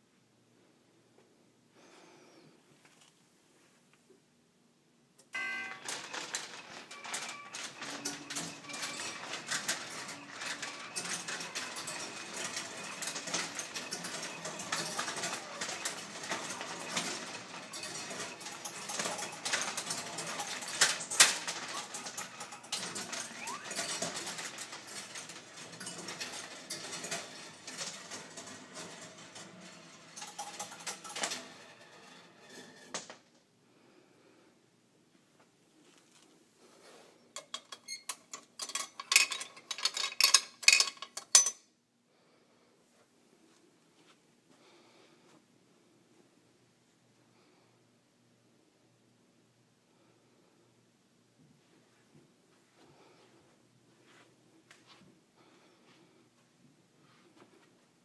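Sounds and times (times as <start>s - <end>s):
gumball rolling on wire tracks: 5.4s - 33.2s.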